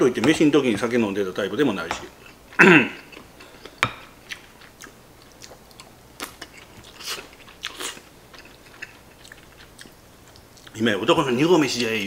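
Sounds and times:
soft chewing: 2.0 - 10.9.

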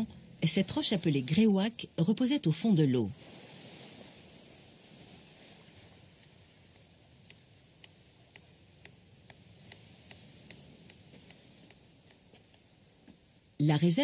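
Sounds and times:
faint low hiss: 0.0 - 14.0
faint regular ticks: 6.7 - 12.6.

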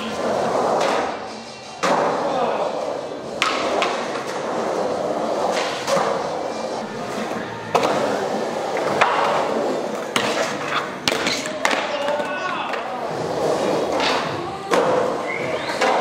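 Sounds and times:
skateboard wheels rolling: 0.0 - 16.0
skateboard clacks and slaps: 3.3 - 6.3, 7.2 - 16.0.

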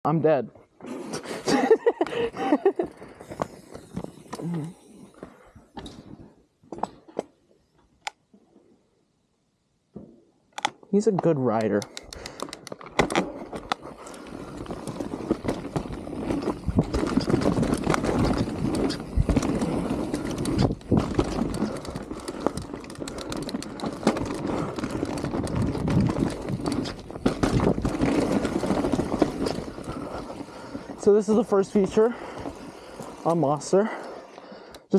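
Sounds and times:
bike tyres rolling over stones: 1.5 - 6.2, 12.8 - 34.7
bike rattling over bumps: 1.5 - 7.1, 12.3 - 34.7.

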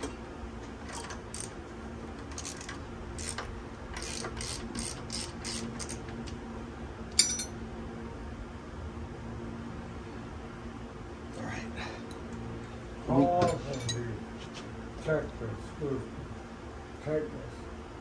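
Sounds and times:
hand ratchet clicking: 0.9 - 1.6, 2.2 - 6.4
sharp metallic clink: 7.2 - 7.6.

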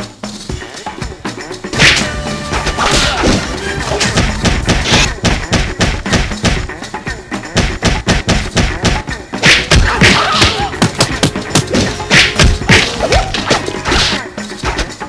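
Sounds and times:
music: 0.0 - 15.0
punch thuds and whacks: 1.8 - 2.1, 2.7 - 6.7, 7.6 - 14.2.

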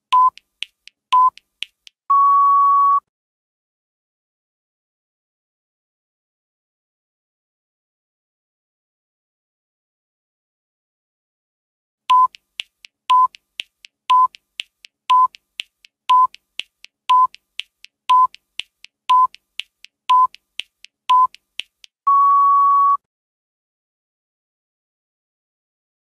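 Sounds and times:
short timer beeps: 0.1 - 0.4, 1.1 - 1.4, 12.1 - 12.4, 13.1 - 13.4, 14.1 - 14.4, 15.1 - 15.4, 16.1 - 16.4, 17.1 - 17.4, 18.1 - 18.4, 19.1 - 19.4, 20.1 - 20.4, 21.1 - 21.4
long steady beep: 2.1 - 3.0, 12.1 - 12.3, 22.1 - 23.0
faint ticks: 12.1 - 22.0.

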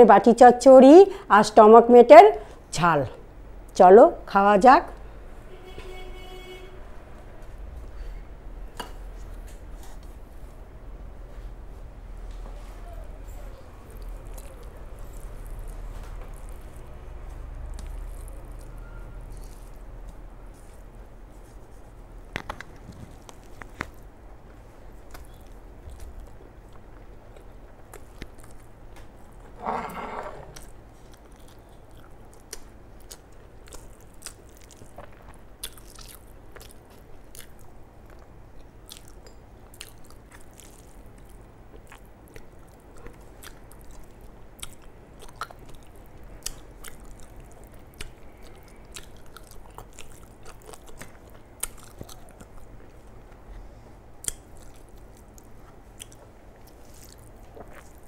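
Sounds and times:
chewing with wet mouth clicks: 13.4 - 20.8, 25.0 - 29.1, 30.6 - 53.5, 54.2 - 58.0.

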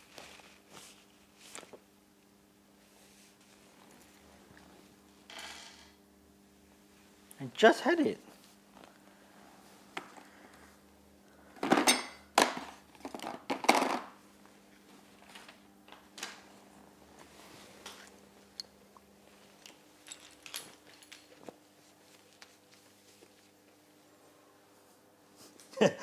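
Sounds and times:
metal parts clinking and rattling: 19.6 - 21.4.

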